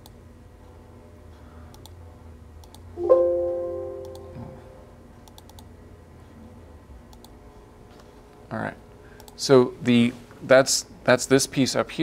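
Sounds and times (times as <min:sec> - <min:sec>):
electronic chime: 0:03.0 - 0:04.9.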